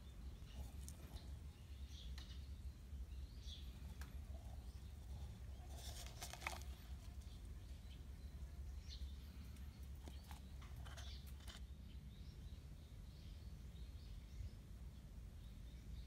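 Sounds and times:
plastic cup rustling: 5.0s - 7.4s.

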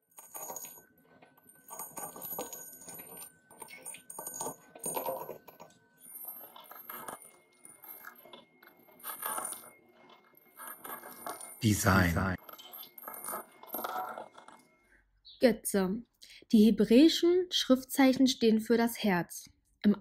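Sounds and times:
clattering and crackling: 0.0s - 14.9s
thin high tone: 11.2s - 12.4s.

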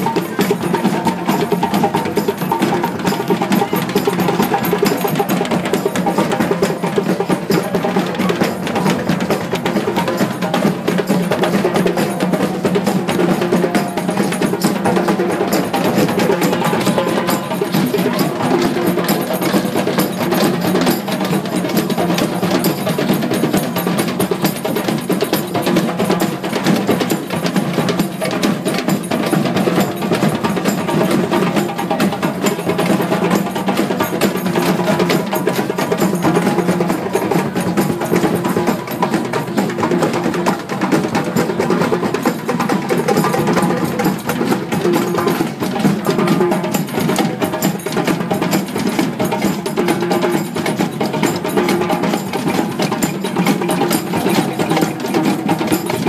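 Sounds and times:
hand drums beating a rhythm: 0.0s - 56.0s
wood-block-like clacks: 0.0s - 56.0s.

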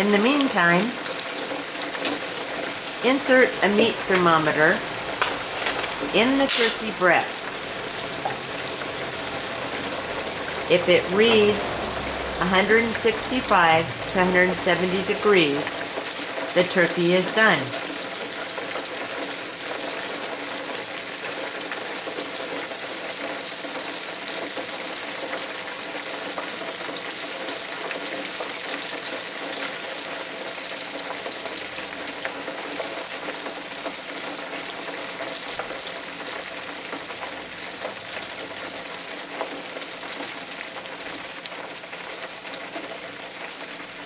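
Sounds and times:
hot oil sizzling: 0.0s - 44.0s.

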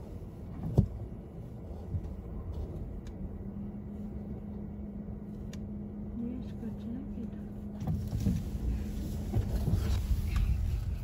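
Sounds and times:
car cabin rumble: 0.0s - 11.0s
low hum: 0.0s - 11.0s.

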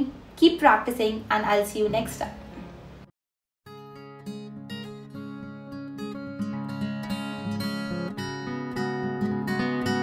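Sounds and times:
strummed acoustic guitar music: 3.7s - 10.0s.

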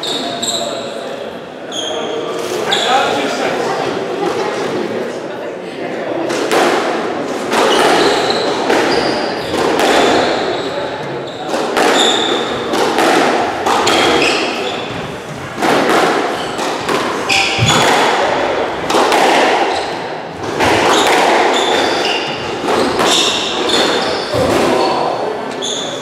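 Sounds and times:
sneakers squeaking on wooden floor: 0.0s - 1.0s, 1.7s - 3.4s, 7.6s - 18.8s, 19.5s - 26.0s
squash ball cracking off rackets: 6.3s - 10.6s, 11.4s - 24.9s.

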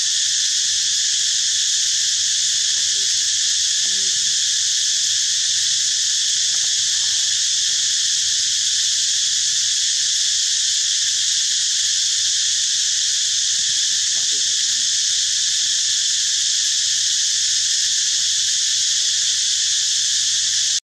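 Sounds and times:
insects droning: 0.0s - 20.8s.

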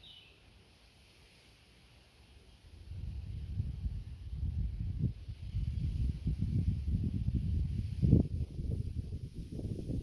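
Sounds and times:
wind buffeting microphone: 2.9s - 10.0s.

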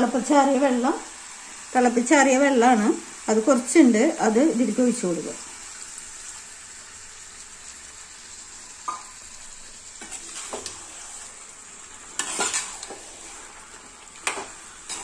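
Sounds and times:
chicken sizzling in a pot: 0.0s - 15.0s
spatula scraping a pan: 10.0s - 15.0s.

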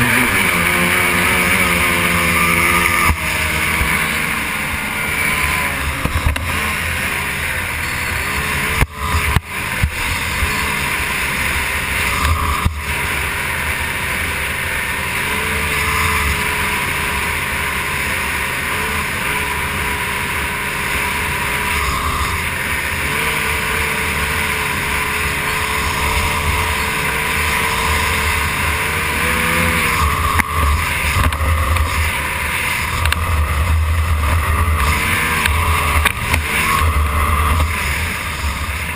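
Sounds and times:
outboard motor racing: 0.0s - 38.9s.

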